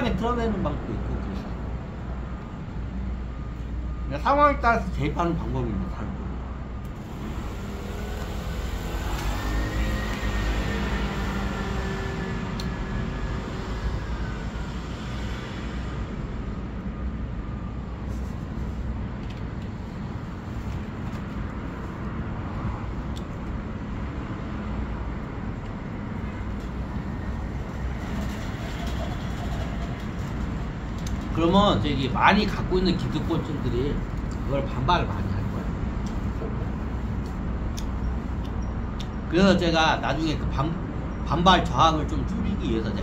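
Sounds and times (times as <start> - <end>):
road traffic rumble: 0.0 - 43.0
engine passing by: 7.0 - 16.2.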